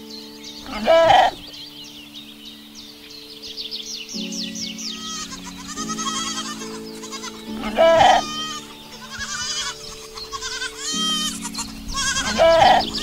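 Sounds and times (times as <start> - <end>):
calm background music: 0.0 - 13.0
high chirping: 0.0 - 13.0
goat bleating: 0.7 - 1.4, 5.0 - 13.0.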